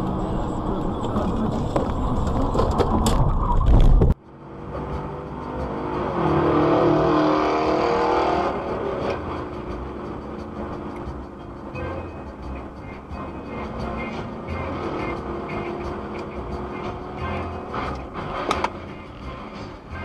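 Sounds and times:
road and wind noise: 0.0s - 20.0s
traffic noise: 0.0s - 20.0s.

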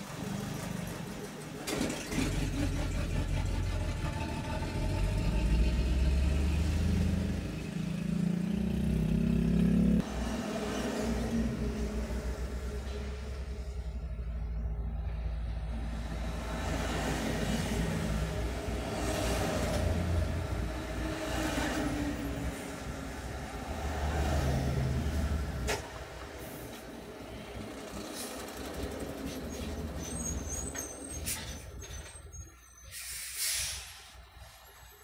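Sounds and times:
heavy trucks driving past: 0.0s - 35.0s
short hiss: 32.9s - 34.2s.

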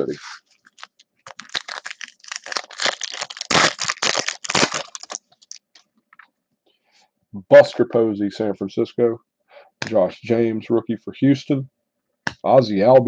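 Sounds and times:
foil wrapper tearing and crinkling: 0.6s - 5.8s.

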